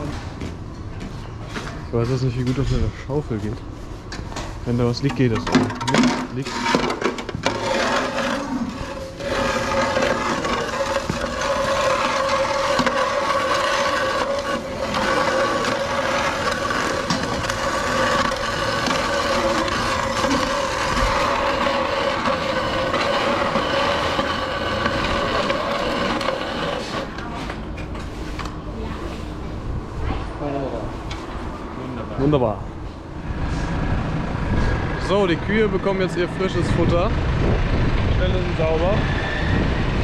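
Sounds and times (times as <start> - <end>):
metal shovel scraping trough: 4.9 - 27.2.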